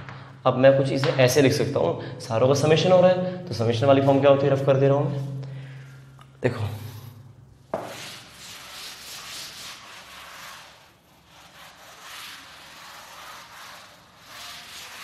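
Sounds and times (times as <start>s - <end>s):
duster rubbing on chalkboard: 7.7s - 15.0s.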